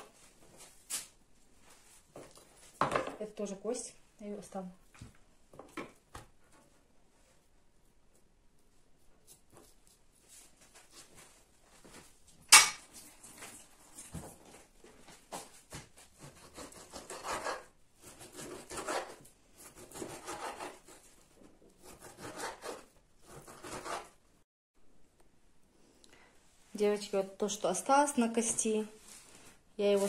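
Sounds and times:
knife scraping on wooden board: 0:16.2 - 0:21.1, 0:21.8 - 0:24.2.

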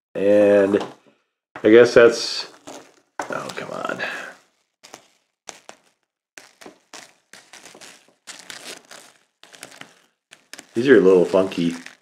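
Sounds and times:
plastic toy rustles and clicks: 0:01.6 - 0:12.0.

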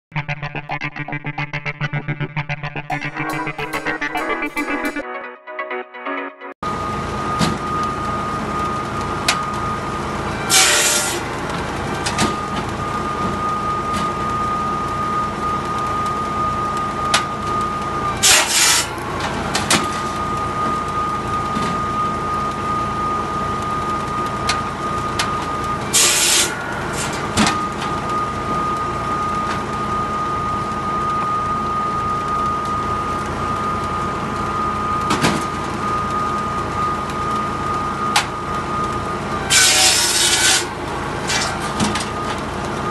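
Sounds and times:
tractor engine running: 0:06.7 - 0:39.5, 0:40.7 - 0:42.9
saw cutting through log: 0:10.5 - 0:11.2, 0:18.2 - 0:19.0, 0:25.9 - 0:27.3, 0:39.5 - 0:41.8
circular saw blade whining: 0:15.8 - 0:29.9, 0:39.4 - 0:42.4.

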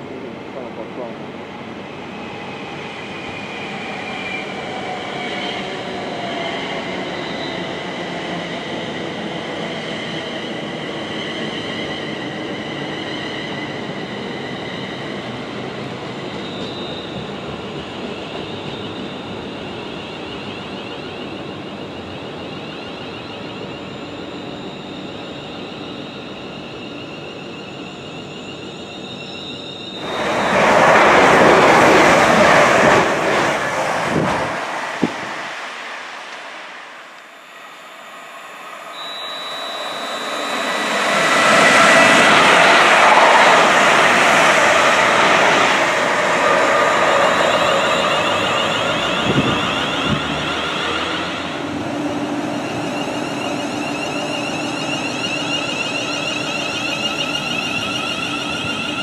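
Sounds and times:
high whining tones: 0:24.6 - 0:59.0.

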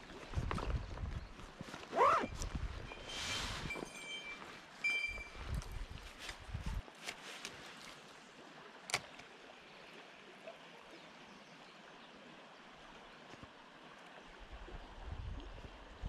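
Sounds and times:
river current flowing: 0:01.4 - 0:16.0.

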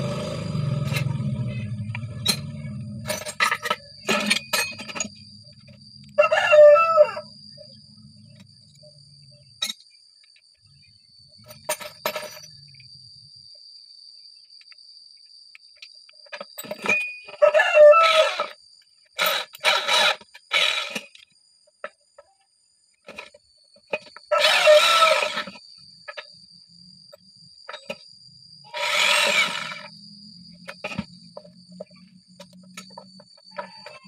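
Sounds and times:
electric drill whining bursts: 0:18.0 - 0:18.6, 0:19.2 - 0:21.2, 0:24.3 - 0:25.6, 0:28.7 - 0:30.0.

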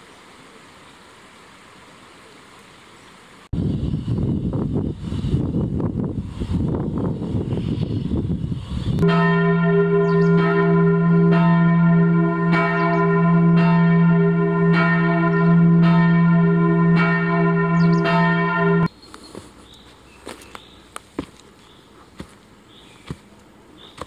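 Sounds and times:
church bells ringing: 0:09.0 - 0:18.9
low hum: 0:09.0 - 0:18.9.

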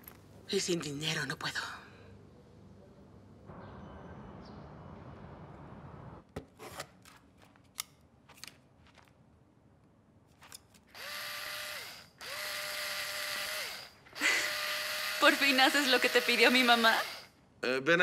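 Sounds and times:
cordless drill whining: 0:10.9 - 0:17.3.

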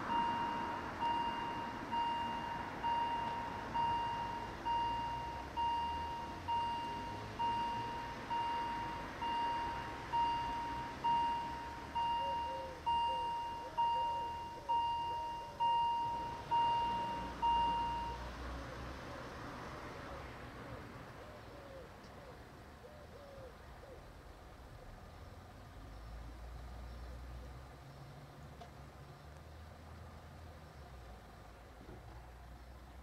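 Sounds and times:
level crossing warning bell: 0:00.0 - 0:18.3.

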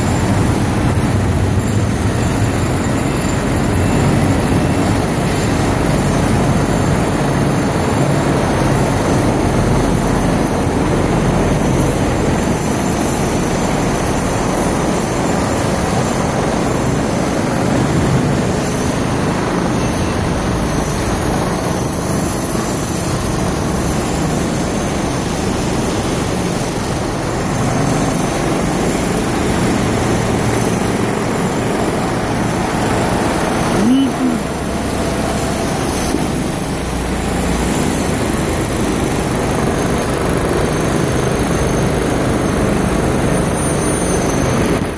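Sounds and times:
concrete cutting machine running: 0:00.0 - 0:44.9.

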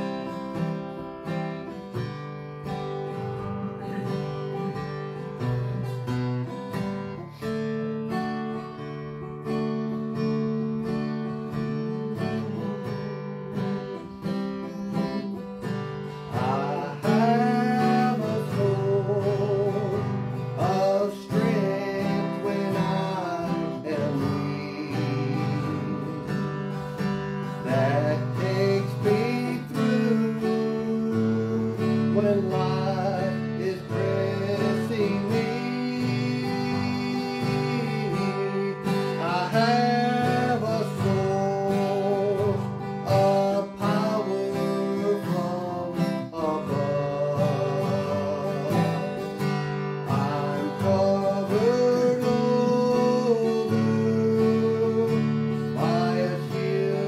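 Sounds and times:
strummed acoustic guitar: 0:00.0 - 0:57.0
man singing a gospel song: 0:16.2 - 0:26.8, 0:27.6 - 0:57.0.

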